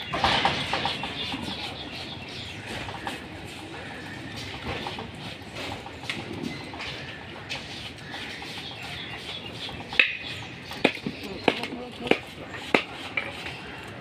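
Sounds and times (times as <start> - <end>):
birds calling and clucking: 0.0 - 14.0
busy outdoor background: 0.0 - 14.0.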